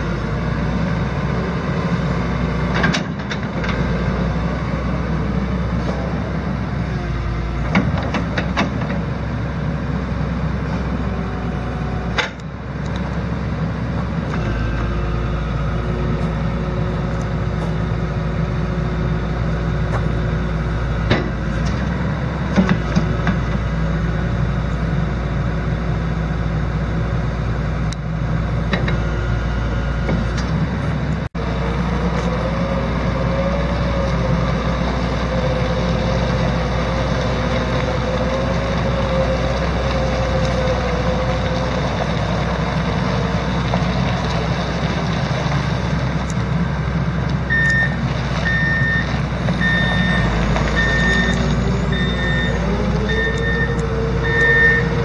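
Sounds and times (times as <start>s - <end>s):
excavator diesel engine running: 0.0s - 55.0s
sharp clunks and knocks: 22.5s - 23.6s.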